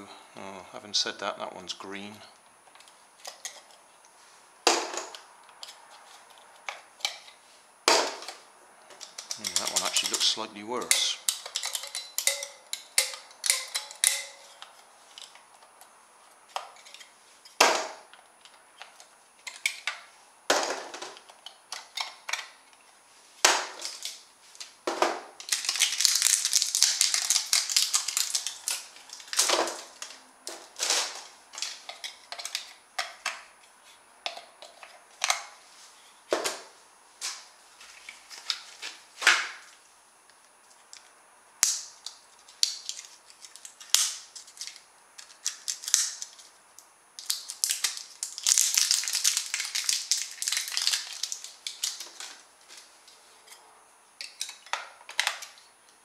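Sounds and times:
batteries clicking and knocking: 4.7s - 15.9s, 23.5s - 33.5s, 41.6s - 46.5s, 47.2s - 52.8s
batteries rattling: 9.0s - 15.4s, 25.4s - 33.4s, 42.5s - 46.5s, 47.2s - 52.9s.

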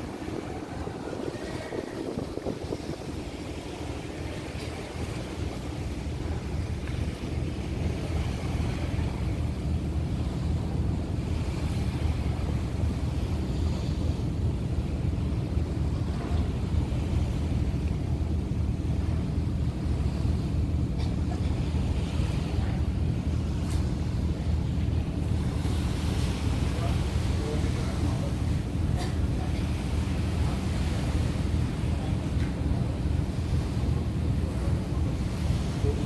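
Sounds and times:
wind on microphone: 0.0s - 20.8s
ferry engines rumbling: 0.0s - 36.0s
water rushing past hull: 0.0s - 36.0s.

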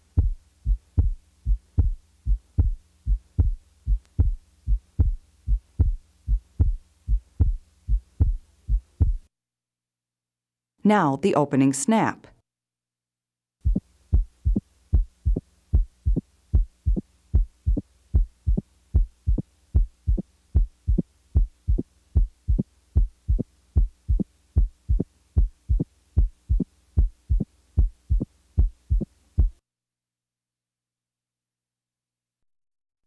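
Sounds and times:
faint steady hum: 0.0s - 9.3s, 13.6s - 29.6s
heartbeat through stethoscope: 0.0s - 9.3s, 13.6s - 29.6s.

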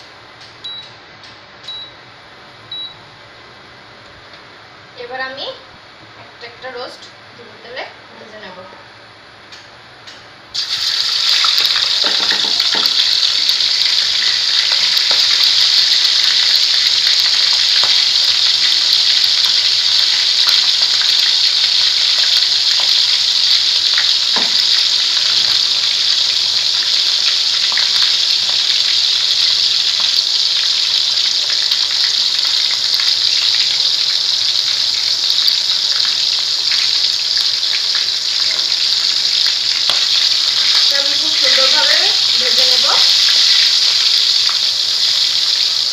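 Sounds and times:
chicken deep-frying in hot oil: 10.5s - 45.9s.

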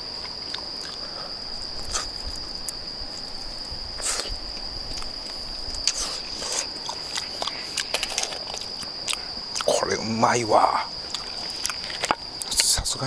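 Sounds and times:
night insects trilling: 0.0s - 13.0s
short clicks and crunches: 5.0s - 9.7s, 11.1s - 12.8s.

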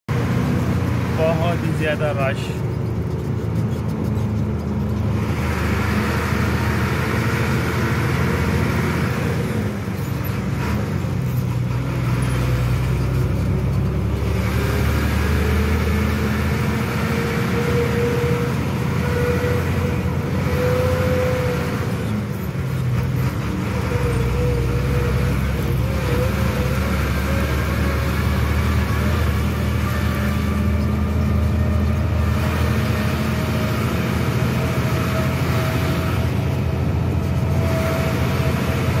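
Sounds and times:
truck engine running: 0.1s - 39.0s.

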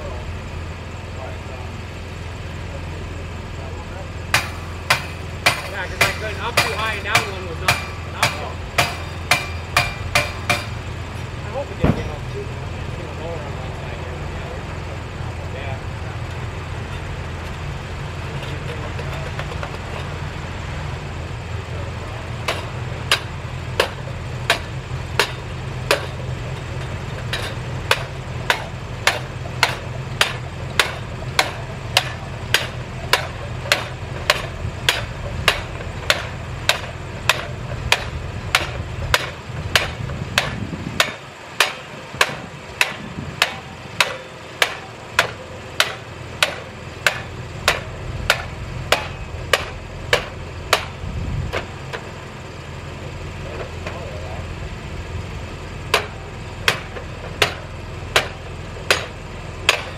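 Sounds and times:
engine running low: 0.0s - 59.9s
hammer blows cracking: 4.3s - 10.8s, 22.4s - 26.2s, 27.2s - 51.0s, 55.9s - 59.9s.

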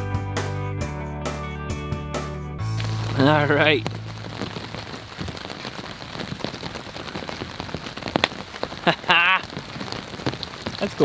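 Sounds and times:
steady rain: 2.6s - 11.0s
raindrops ticking: 2.7s - 11.0s.

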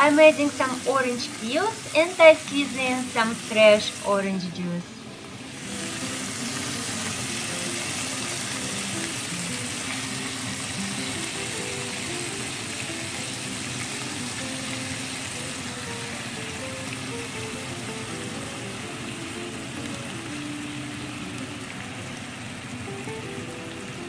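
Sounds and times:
background music: 0.0s - 24.0s
fish fillets sizzling in a pan: 0.0s - 24.0s.

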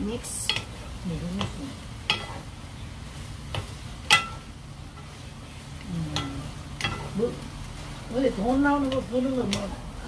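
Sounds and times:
wooden spoons knocking frying pan: 0.0s - 2.6s, 3.4s - 5.2s, 6.1s - 7.6s, 8.3s - 9.9s
low steady hum: 0.0s - 10.0s.

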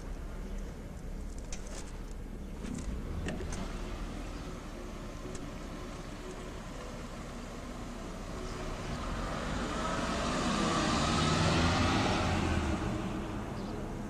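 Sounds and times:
car driving past: 8.4s - 13.8s.

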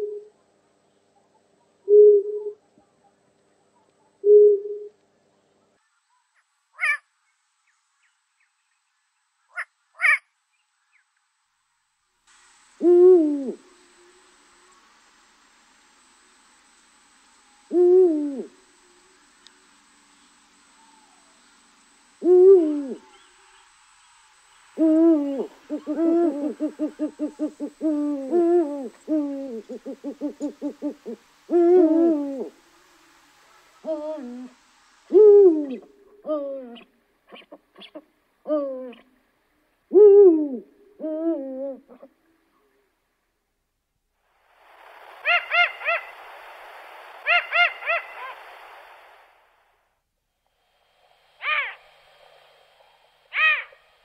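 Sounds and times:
owl hooting: 0.0s - 0.4s, 1.8s - 2.9s, 3.8s - 5.0s, 6.8s - 7.0s, 9.5s - 10.2s, 12.7s - 16.3s, 17.3s - 39.1s, 39.9s - 42.2s, 45.2s - 46.2s, 47.2s - 49.1s, 51.4s - 51.8s, 52.8s - 53.9s
steady hiss: 0.0s - 54.0s.

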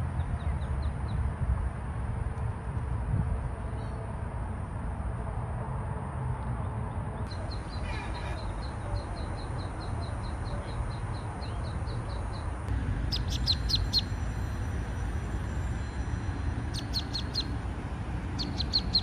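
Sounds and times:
steady low rumble: 0.0s - 19.0s
ducklings peeping: 7.3s - 14.3s, 16.6s - 17.6s, 18.3s - 19.0s.

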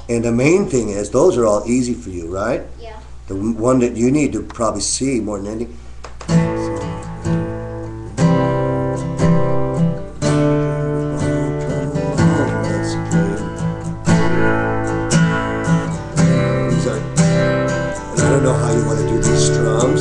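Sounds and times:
acoustic guitar strumming chords: 6.3s - 20.0s.

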